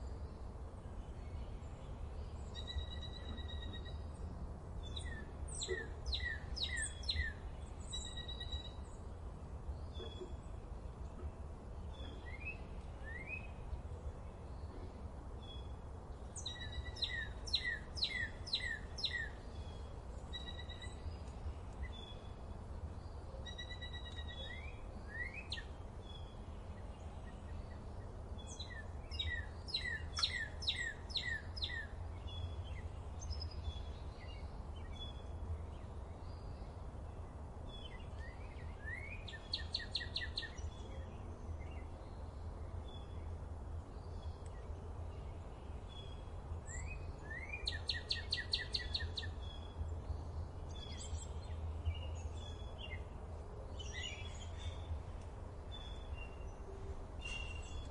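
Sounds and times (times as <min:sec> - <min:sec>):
songbirds singing and trilling: 0:00.0 - 0:57.9
bird chirps: 0:04.9 - 0:08.9, 0:16.4 - 0:22.3, 0:23.4 - 0:26.3, 0:28.4 - 0:35.2, 0:37.7 - 0:41.0, 0:46.0 - 0:49.8, 0:57.2 - 0:57.9.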